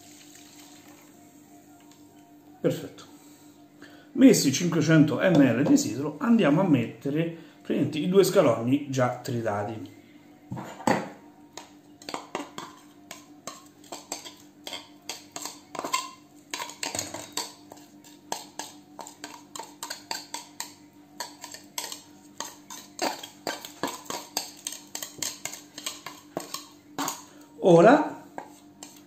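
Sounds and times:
utensil scraping glass bowl: 28.4 - 29.0.

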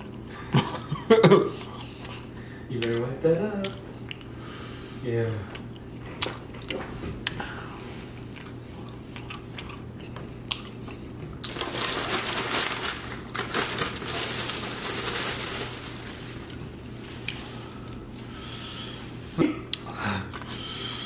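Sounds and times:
paper crumpling: 11.5 - 17.0.

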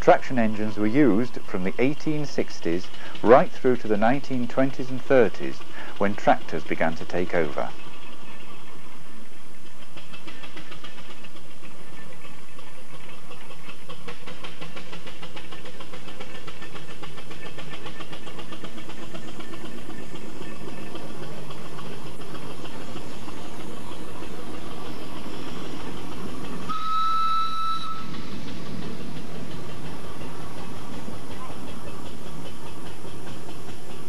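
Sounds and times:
steam traction engine working: 0.0 - 34.0
steam whistle blast: 26.7 - 28.2.

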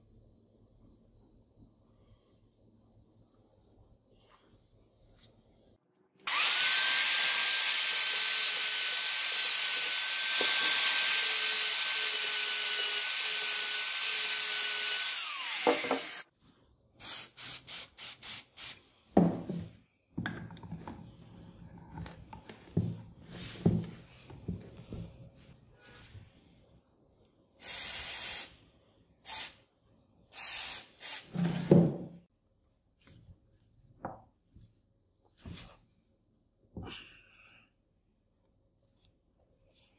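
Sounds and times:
grinder motor whining: 6.3 - 16.2.

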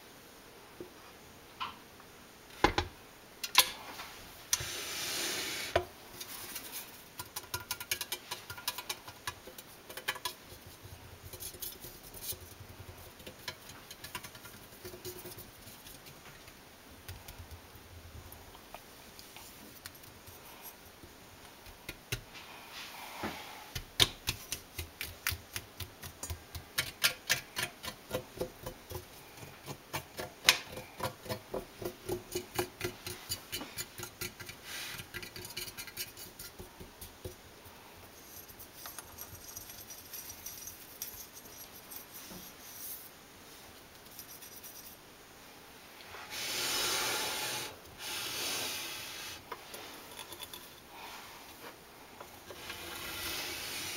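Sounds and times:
rubbing scraping strokes: 4.6 - 6.9, 52.5 - 53.9.

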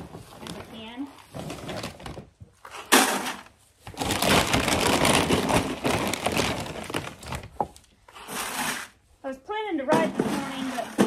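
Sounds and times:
feed bag crinkling and rattling: 0.0 - 7.9.

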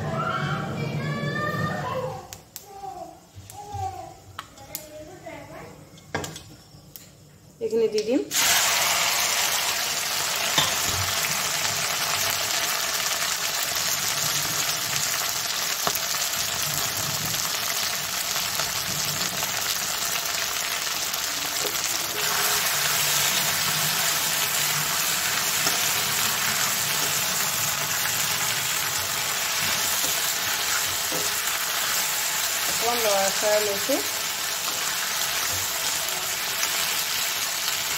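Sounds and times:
slices sizzling in hot oil: 8.3 - 37.9.

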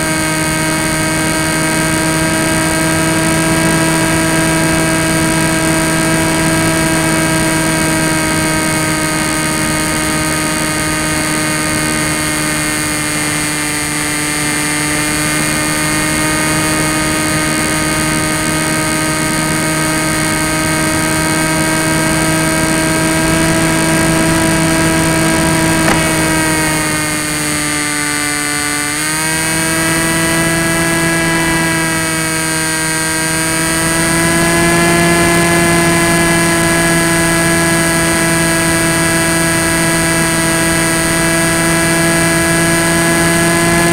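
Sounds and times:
electric motor and propeller whining: 0.0 - 43.9
rush of air: 24.8 - 27.3.

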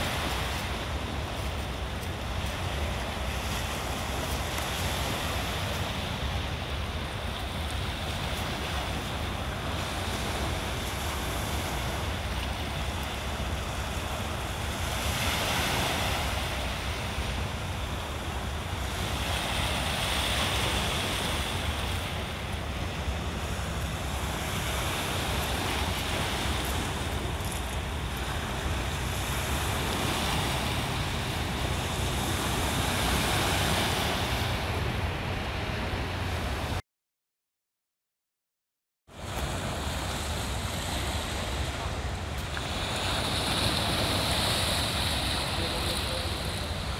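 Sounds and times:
waves washing over pebbles: 0.0 - 36.8, 39.2 - 46.9
wind rumbling on microphone: 0.0 - 36.8.

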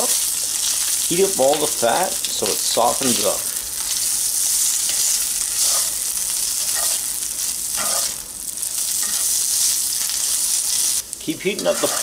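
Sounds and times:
meat sizzling in oil: 0.0 - 12.0
spatula scraping pan: 3.8 - 10.9, 11.6 - 12.0.

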